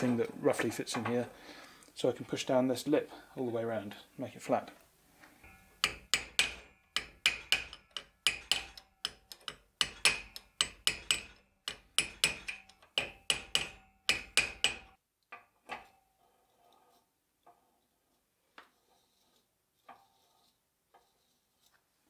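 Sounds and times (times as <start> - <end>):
hammer striking metal: 5.4 - 15.0.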